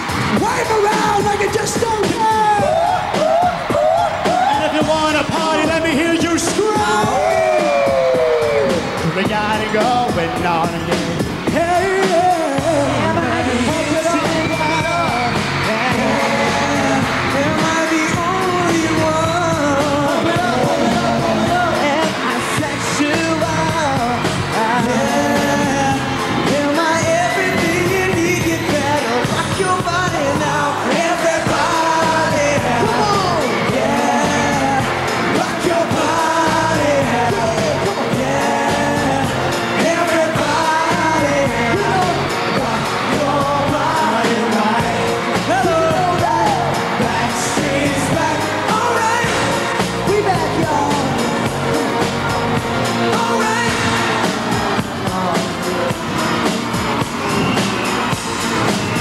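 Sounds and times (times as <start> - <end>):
loud pop music: 0.0 - 59.0
male vocal group singing: 2.8 - 59.0.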